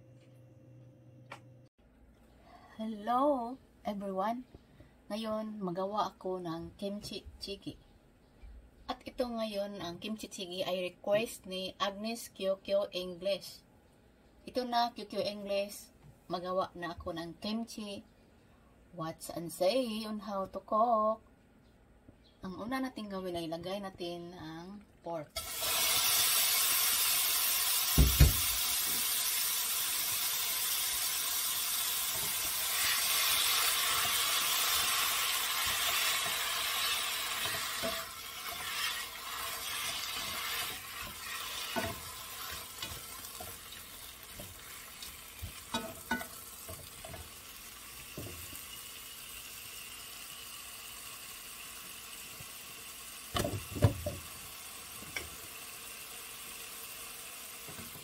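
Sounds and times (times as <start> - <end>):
meat sizzling in a pot: 25.4 - 58.0
spatula stirring and scraping: 32.1 - 47.3.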